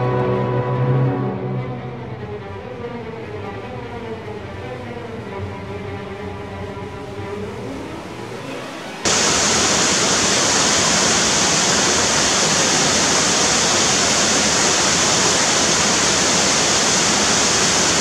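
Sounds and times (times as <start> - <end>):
loud rushing hiss: 9.0 - 18.0.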